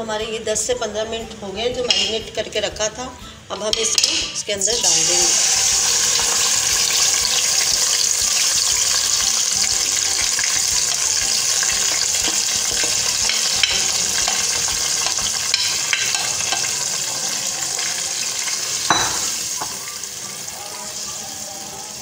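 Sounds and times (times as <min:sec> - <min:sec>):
chicken sizzling in hot oil: 0:04.8 - 0:22.0.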